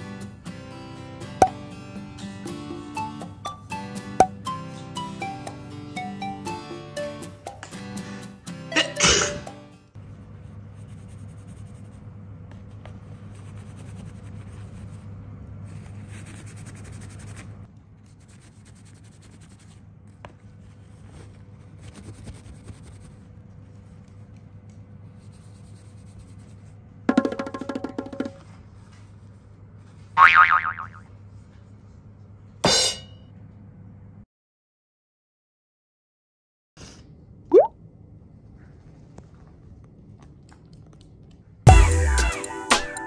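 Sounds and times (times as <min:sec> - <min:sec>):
background music: 0:00.0 - 0:09.9, 0:41.7 - 0:43.0
person sneezing: 0:08.7 - 0:09.5.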